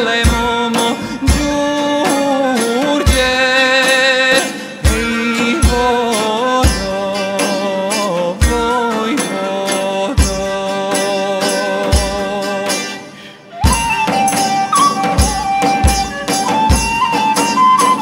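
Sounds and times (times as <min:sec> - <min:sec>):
jingling hand percussion: 0:00.0 - 0:18.0
deep drum beat: 0:00.1 - 0:07.7, 0:08.3 - 0:09.0, 0:13.6 - 0:17.3
flute playing high melody: 0:13.5 - 0:18.0.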